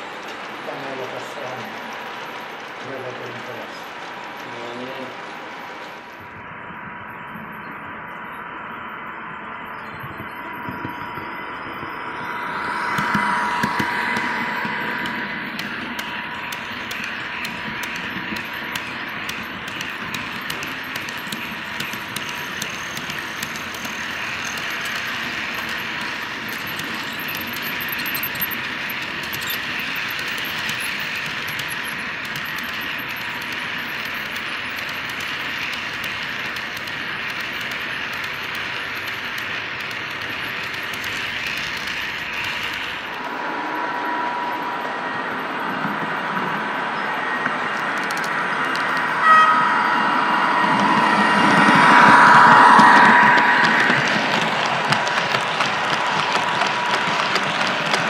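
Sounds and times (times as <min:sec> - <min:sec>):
model train wheels clattering: 0:13.0 - 0:43.2.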